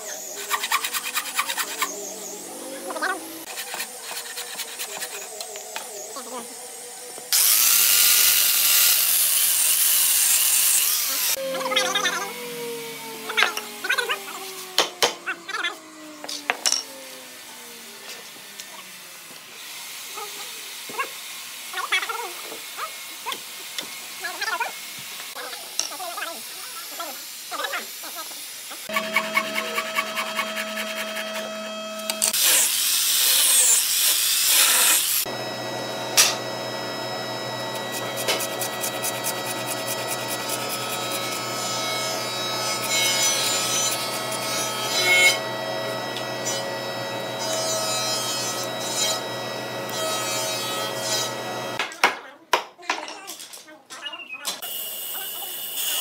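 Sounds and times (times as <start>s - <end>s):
steady hum: 35.3s - 51.8s.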